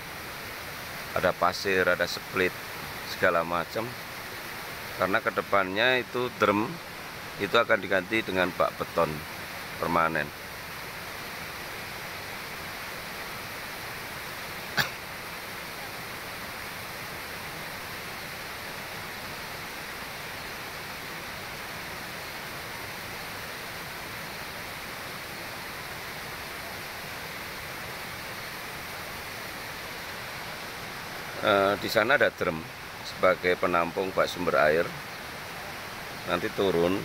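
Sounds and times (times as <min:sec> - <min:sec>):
flowing water rushing: 0:00.0 - 0:37.0.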